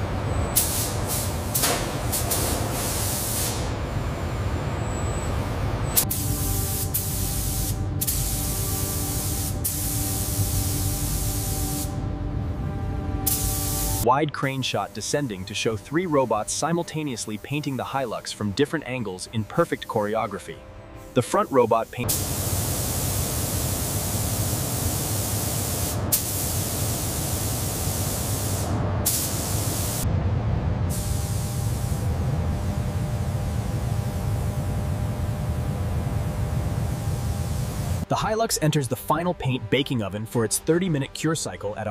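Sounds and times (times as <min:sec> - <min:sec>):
steady hum: 0:00.0 - 0:38.2
paint spray gun hissing: 0:00.6 - 0:03.7, 0:06.0 - 0:12.0, 0:13.3 - 0:14.0, 0:21.0 - 0:30.0, 0:30.9 - 0:32.1
low even rumble: 0:30.0 - 0:31.3.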